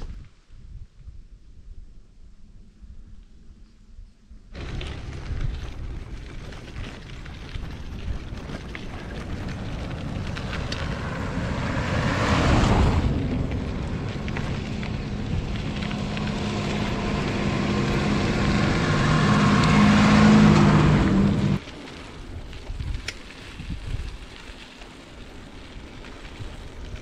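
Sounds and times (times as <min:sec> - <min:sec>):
wind and road rush: 0:00.0 - 0:27.0
motorcycle engine humming: 0:04.2 - 0:21.6.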